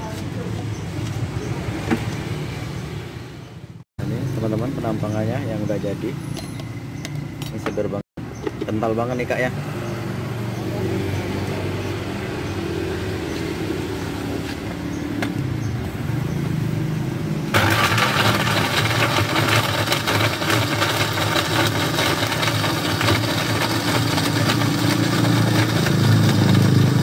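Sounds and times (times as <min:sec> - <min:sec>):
electric blender running: 0:17.5 - 0:27.0.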